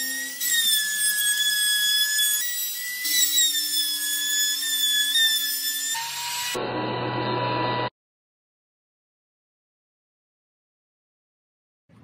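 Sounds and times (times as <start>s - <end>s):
router cutting wood: 0.0s - 7.9s.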